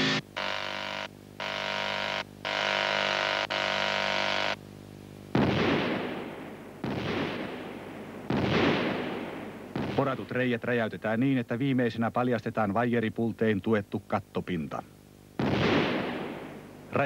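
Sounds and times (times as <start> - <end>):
machine drone: 0.0 - 4.6
rock-blasting explosions: 5.4 - 10.2, 15.4 - 16.6.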